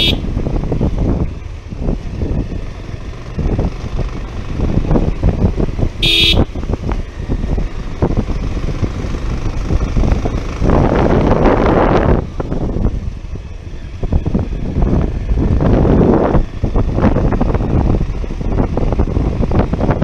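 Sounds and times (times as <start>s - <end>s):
short horn beeps: 0.0s - 0.3s, 6.0s - 6.5s
motorcycle riding: 0.0s - 20.0s
wind rushing over microphone: 0.0s - 20.0s.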